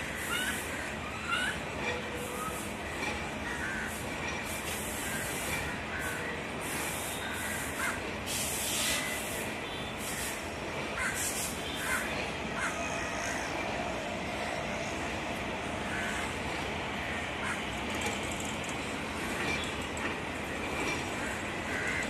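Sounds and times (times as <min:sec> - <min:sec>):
distant locomotive rumble: 0:00.0 - 0:22.0
crows cawing: 0:03.4 - 0:04.0, 0:07.2 - 0:08.0, 0:11.0 - 0:11.2, 0:11.8 - 0:13.6, 0:15.8 - 0:17.7, 0:21.2 - 0:22.0.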